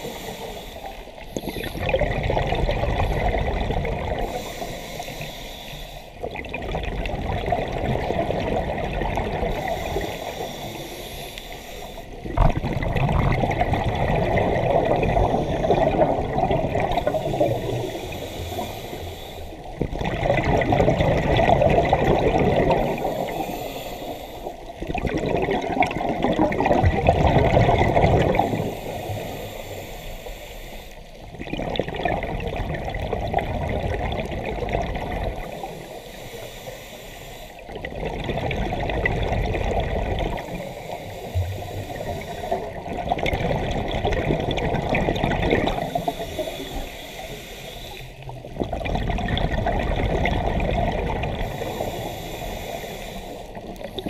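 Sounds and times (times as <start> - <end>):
diver breathing through regulator: 0.0 - 2.0, 3.0 - 6.2, 9.4 - 12.6, 14.3 - 20.1, 22.6 - 24.7, 28.0 - 31.2, 35.3 - 37.9, 40.2 - 42.9, 45.6 - 48.5, 51.3 - 54.0
air bubbles rushing and gurgling: 0.9 - 4.6, 6.2 - 10.3, 12.1 - 18.7, 19.6 - 23.4, 24.5 - 29.0, 31.2 - 35.8, 37.6 - 46.6, 48.2 - 51.8.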